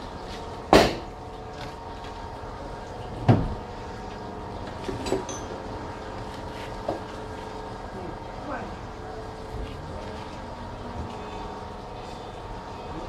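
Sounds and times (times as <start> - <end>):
steady machine hum: 0.0 - 13.0
loud knocks: 0.7 - 1.1, 3.2 - 3.6.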